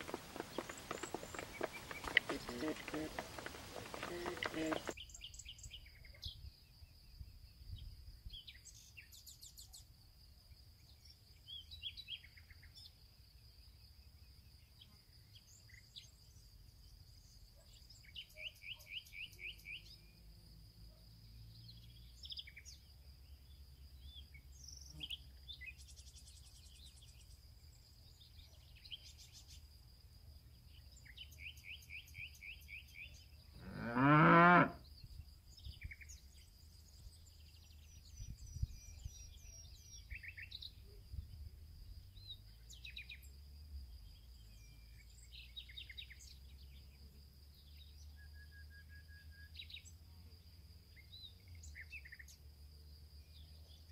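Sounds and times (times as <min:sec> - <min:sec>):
birds chirping: 0:00.0 - 0:05.4
cow mooing: 0:33.6 - 0:34.8.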